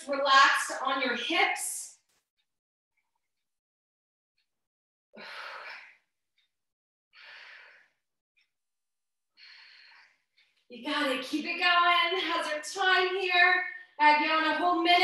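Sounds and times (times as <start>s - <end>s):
woman breathing heavily: 5.2s - 6.1s, 7.2s - 8.1s, 9.4s - 10.6s.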